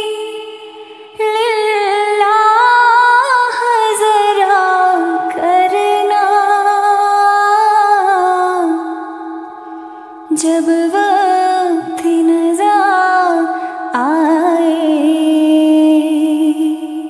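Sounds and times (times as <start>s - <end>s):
woman singing unaccompanied: 0.0s - 9.2s, 10.3s - 17.0s.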